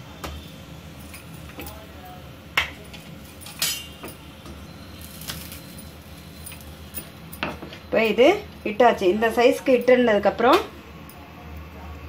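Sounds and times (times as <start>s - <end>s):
dough clinking on hard surface: 2.6s - 8.2s.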